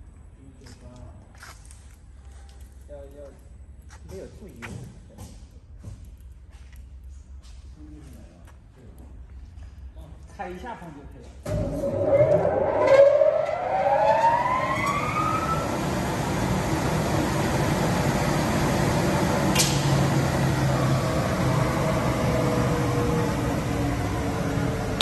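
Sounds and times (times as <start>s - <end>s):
glass cutting machine whirring: 11.6s - 25.0s
sharp click: 19.5s - 19.9s.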